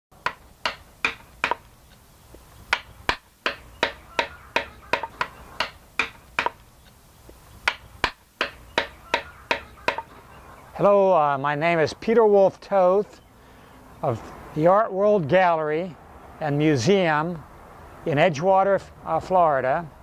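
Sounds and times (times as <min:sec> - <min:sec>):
mallet striking gouge into wood: 0:00.2 - 0:01.7, 0:02.7 - 0:06.6, 0:07.6 - 0:10.1.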